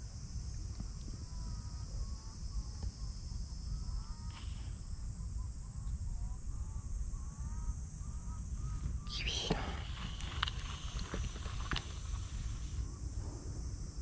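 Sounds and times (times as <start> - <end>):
insects droning: 0.0 - 14.0
faint chirping calls: 3.7 - 12.8
low rumble: 8.5 - 14.0.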